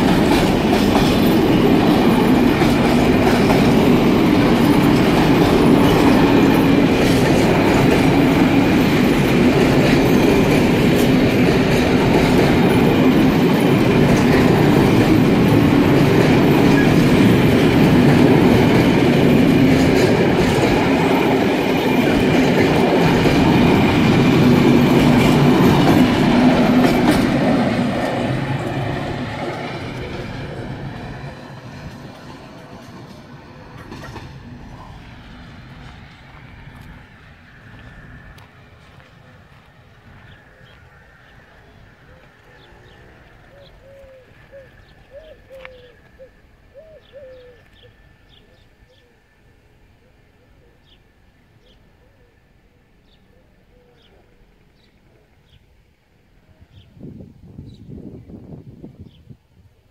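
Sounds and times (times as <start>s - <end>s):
train wheels rumbling on rails: 0.0s - 46.6s.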